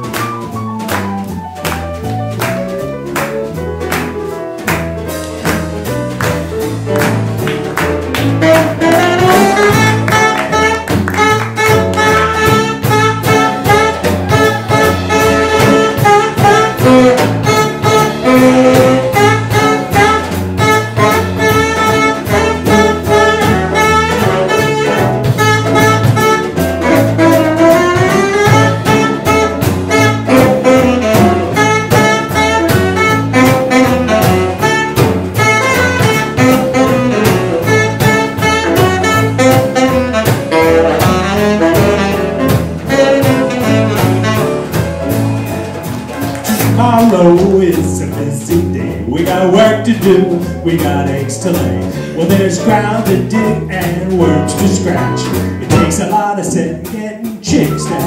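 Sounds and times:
jazz band playing: 0.0 - 58.0
saxophone solo: 6.9 - 47.0.

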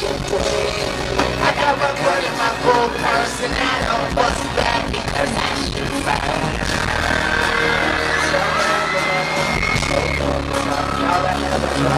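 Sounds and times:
hip-hop music with heavy bass beat: 0.0 - 11.9
crowd cheering: 2.0 - 11.9
high screams: 6.5 - 11.4.

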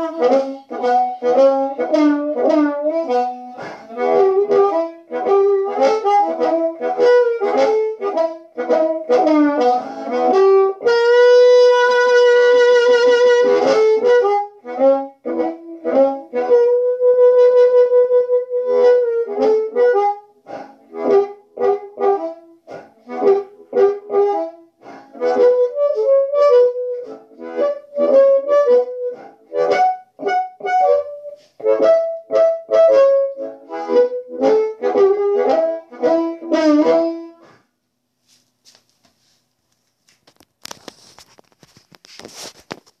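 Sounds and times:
amplified blues harmonica: 0.0 - 37.6
microphone handling rustle: 40.0 - 43.0.

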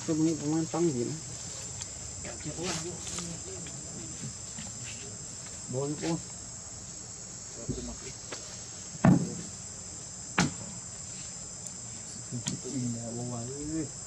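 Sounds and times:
insects chorus: 0.0 - 14.0
sharp knock: 9.0 - 9.5, 10.4 - 10.7.

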